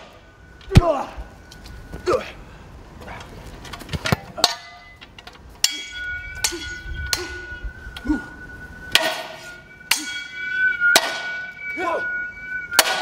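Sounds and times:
swords clashing: 4.4 - 4.9, 5.6 - 7.5, 8.9 - 12.0, 12.8 - 13.0.

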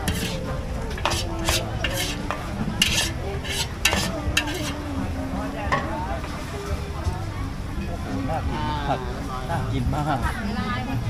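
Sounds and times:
food sizzling: 0.0 - 4.8
metal spatula scraping a wok: 0.0 - 4.9.

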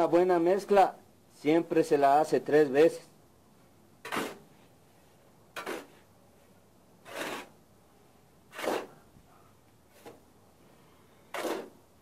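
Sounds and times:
shovel scraping concrete floor: 4.0 - 4.5, 5.6 - 6.1, 7.0 - 7.5, 8.5 - 9.0, 9.9 - 10.2, 11.3 - 11.8.

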